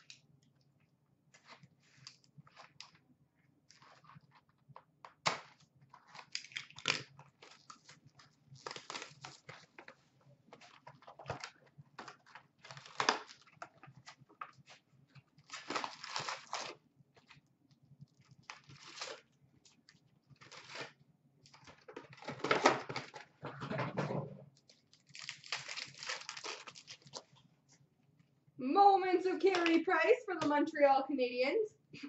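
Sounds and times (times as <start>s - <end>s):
wrappers crinkling and tearing: 5.3s - 10.0s, 10.6s - 16.8s, 18.1s - 23.2s, 24.7s - 27.4s.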